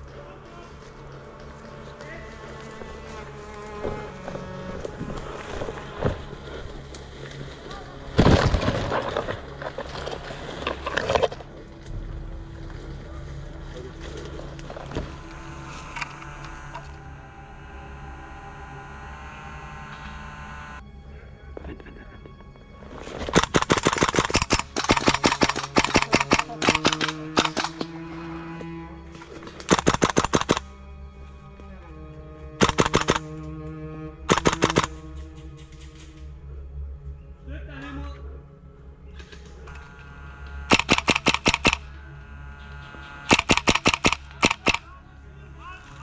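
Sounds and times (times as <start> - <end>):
airsoft gunfire: 23.4 - 27.9, 29.7 - 30.6, 32.6 - 33.2, 34.3 - 34.9, 40.7 - 41.9, 43.2 - 44.9.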